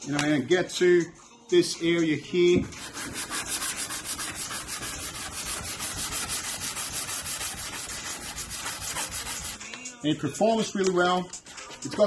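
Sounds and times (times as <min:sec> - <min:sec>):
sandpaper rasping: 0:02.8 - 0:09.6, 0:11.4 - 0:12.0.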